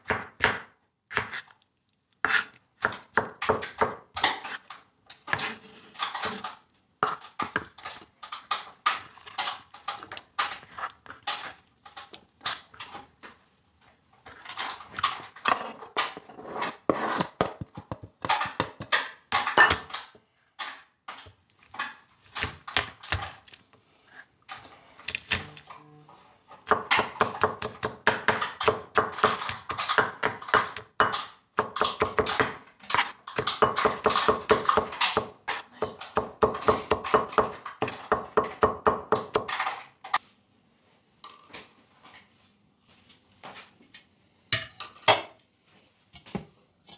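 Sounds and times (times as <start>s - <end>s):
knife chopping on plastic board: 17.0s - 19.8s, 26.7s - 39.6s.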